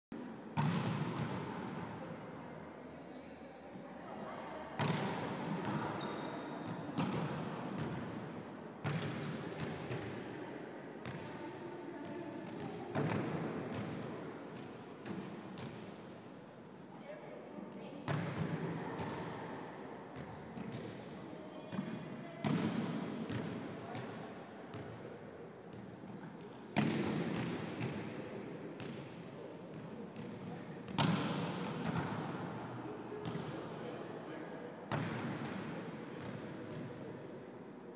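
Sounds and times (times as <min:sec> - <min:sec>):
volleyball smacks echoing: 0:26.8 - 0:28.2, 0:30.9 - 0:32.3.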